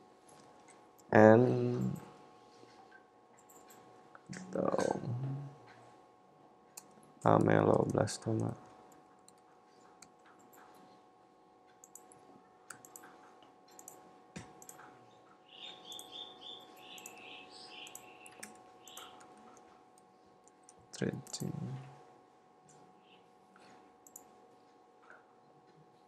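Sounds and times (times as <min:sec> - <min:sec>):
keyboard typing: 0:11.8 - 0:14.9, 0:16.8 - 0:17.2, 0:17.8 - 0:19.6
mouse clicks: 0:16.9 - 0:17.2, 0:17.8 - 0:19.3.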